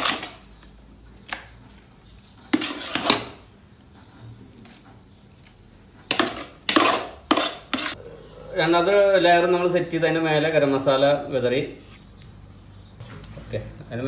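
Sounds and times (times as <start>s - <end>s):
metal pots and utensil clattering: 6.1s - 8.0s.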